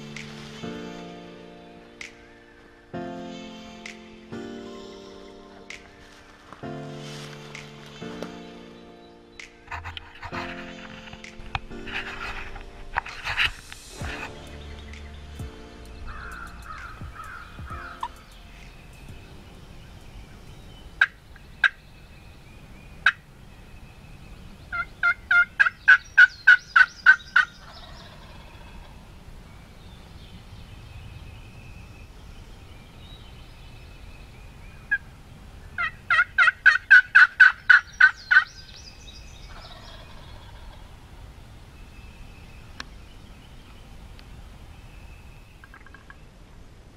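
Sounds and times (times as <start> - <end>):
turkey calling and yelping: 16.1 - 18.7, 24.7 - 28.9, 35.8 - 38.5, 45.6 - 46.2.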